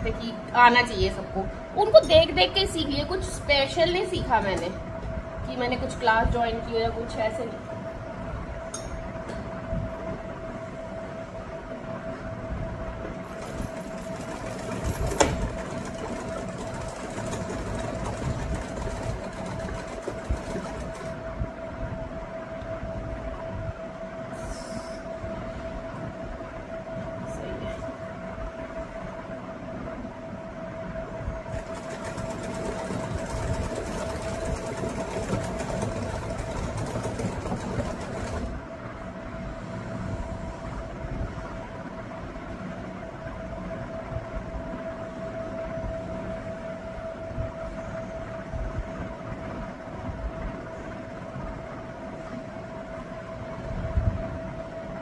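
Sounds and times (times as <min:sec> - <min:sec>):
steady hum: 0:00.0 - 0:55.0
sewing machine clattering: 0:13.3 - 0:21.1, 0:31.6 - 0:38.5.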